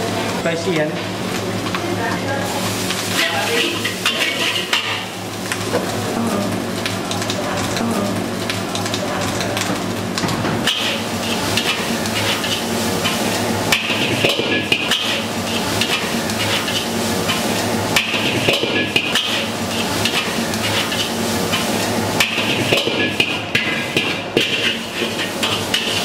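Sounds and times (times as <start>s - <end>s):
frying sizzle: 0.0s - 26.0s
metal spatula scraping a wok: 3.2s - 5.1s, 19.3s - 21.8s, 23.6s - 26.0s.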